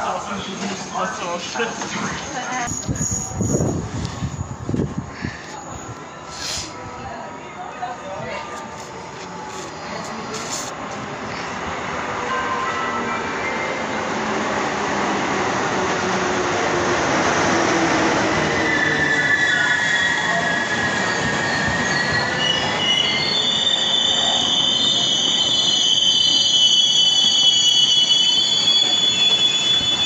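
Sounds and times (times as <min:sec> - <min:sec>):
wheels and brakes squealing: 0:00.3 - 0:04.5, 0:18.1 - 0:30.0.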